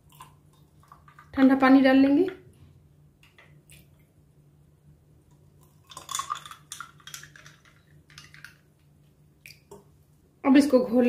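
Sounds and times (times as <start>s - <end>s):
water pouring into glass with ice: 5.6s - 8.6s.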